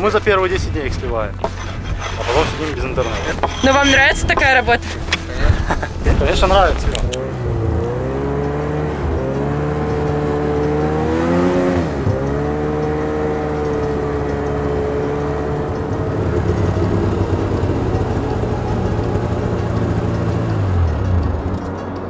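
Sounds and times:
snowmobile engine running: 0:00.0 - 0:21.6.

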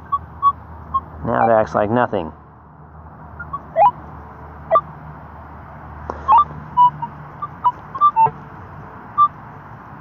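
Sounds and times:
metal detector beeping: 0:06.3 - 0:08.4.

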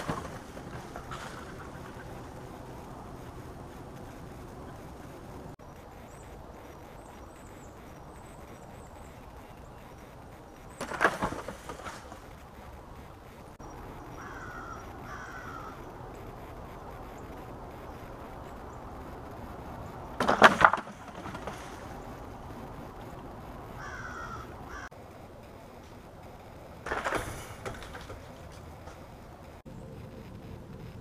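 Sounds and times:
clatter: 0:00.0 - 0:05.6, 0:20.1 - 0:22.2, 0:26.8 - 0:29.6
bird calls: 0:00.0 - 0:24.9.

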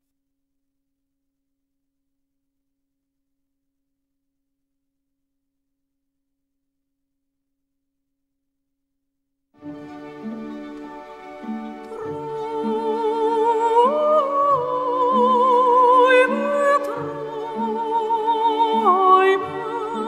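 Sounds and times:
music: 0:09.6 - 0:20.0.

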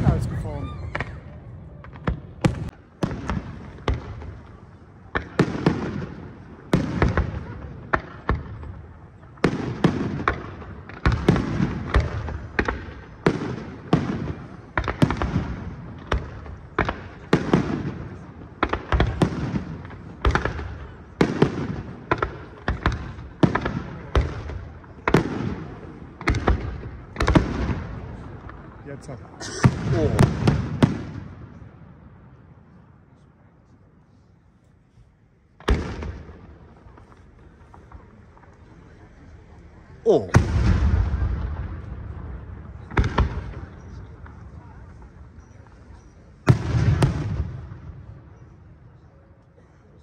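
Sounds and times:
low rumbling echo: 0:00.0 - 0:04.5.

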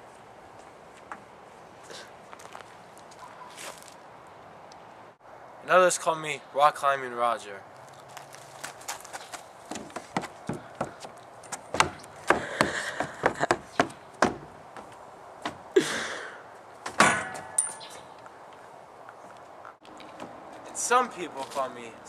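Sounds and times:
shoes scuffing: 0:02.3 - 0:04.0, 0:08.1 - 0:15.7.

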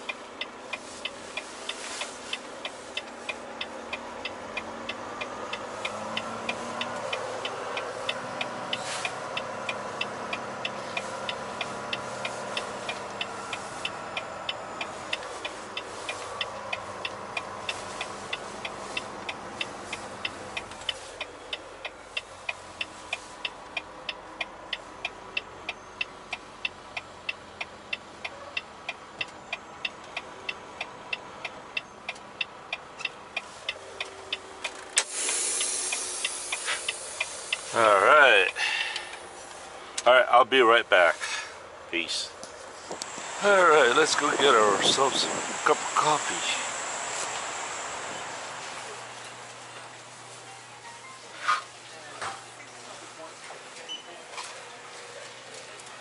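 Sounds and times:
truck engine running: 0:00.0 - 0:53.8.

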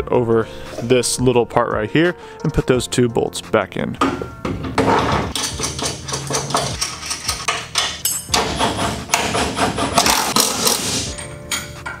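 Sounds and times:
metal clanks and knocks: 0:04.0 - 0:12.0.

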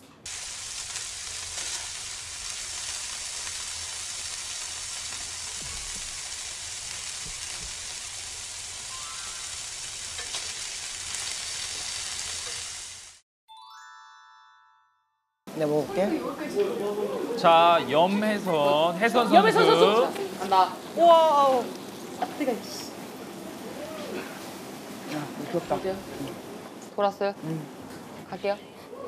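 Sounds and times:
meat sizzling on a grill: 0:00.2 - 0:13.2, 0:17.4 - 0:26.5.

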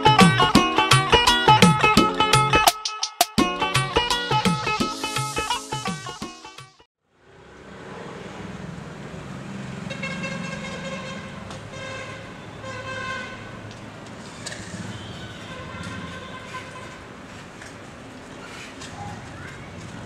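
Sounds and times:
street noise: 0:03.4 - 0:20.0
vehicle horn tooting: 0:09.9 - 0:13.6, 0:14.5 - 0:17.1.

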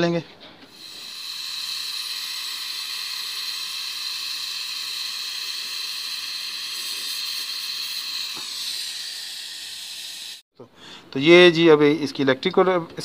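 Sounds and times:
gas torch flame hissing: 0:00.7 - 0:10.4.

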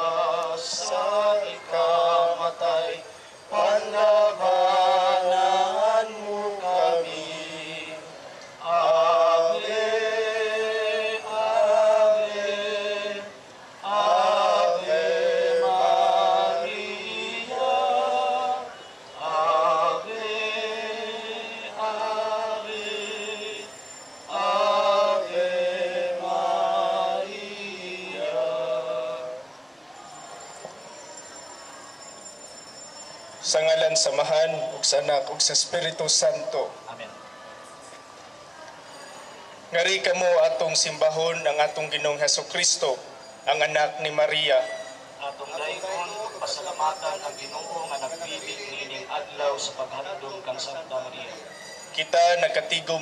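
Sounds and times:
group singing a hymn: 0:00.0 - 0:29.6.

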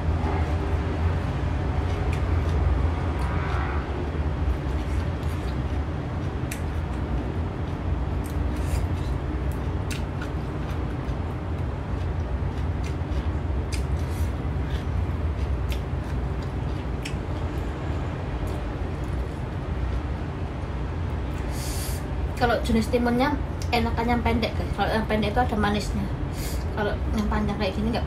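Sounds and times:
low rumble: 0:00.0 - 0:21.5
crunchy chewing: 0:04.5 - 0:17.7.

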